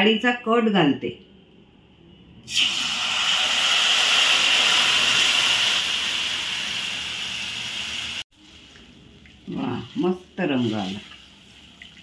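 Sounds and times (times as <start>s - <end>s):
liquid pouring into oil: 2.5s - 6.0s
hot oil sizzling: 2.5s - 12.0s.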